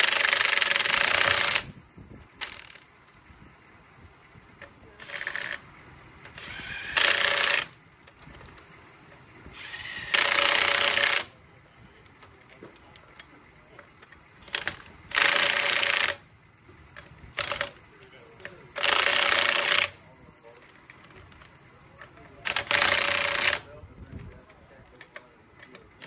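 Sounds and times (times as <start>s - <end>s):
impact wrench hammering: 0.0s - 1.7s, 6.3s - 7.8s, 9.6s - 11.3s, 14.4s - 16.2s, 17.0s - 17.8s, 18.4s - 20.0s, 22.4s - 23.7s.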